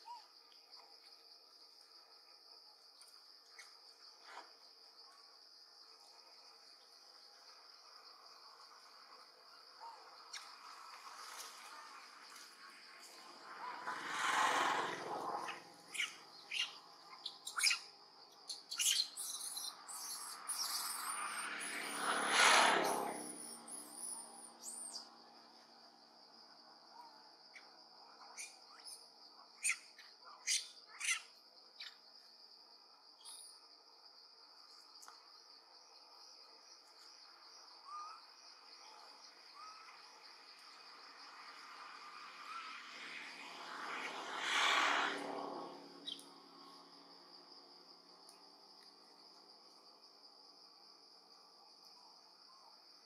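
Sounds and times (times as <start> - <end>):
high thin whistled bird calls: 15.4 - 22.0, 29.6 - 32.0.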